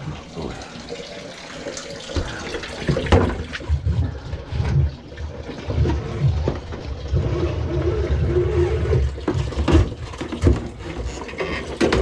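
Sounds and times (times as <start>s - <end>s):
water gurgling in sink drain: 0.0s - 12.0s
low knocks and clatter: 2.9s - 12.0s.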